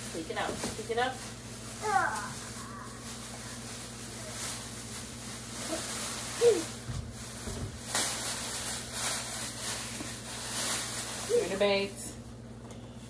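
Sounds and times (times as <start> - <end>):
plastic bags rustling: 0.0 - 12.1
items thumping on floor: 6.7 - 8.6.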